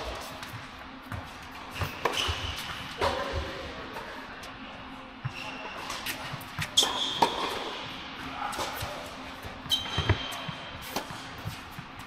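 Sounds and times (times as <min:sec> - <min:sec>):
ball bouncing on hard court: 0:00.0 - 0:03.6, 0:06.1 - 0:07.7, 0:08.6 - 0:12.0
sneakers squeaking on court: 0:00.0 - 0:03.6, 0:05.2 - 0:08.0, 0:08.6 - 0:12.0
tennis racket striking ball: 0:01.8 - 0:03.5, 0:06.0 - 0:07.7, 0:10.8 - 0:11.8.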